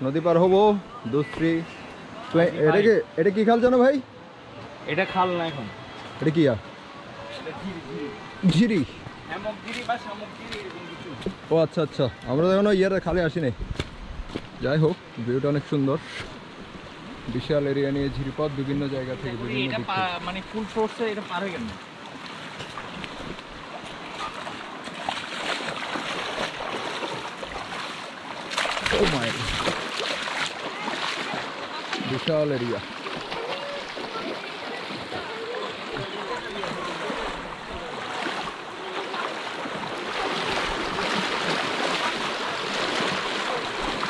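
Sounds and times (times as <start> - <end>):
stream water rushing over rocks: 14.3 - 44.0.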